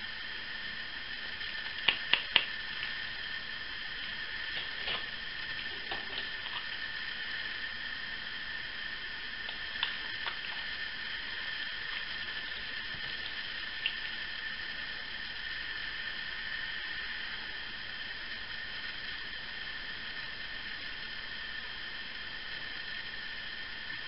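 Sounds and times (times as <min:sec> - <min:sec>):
steady background hiss: 0:00.0 - 0:24.0.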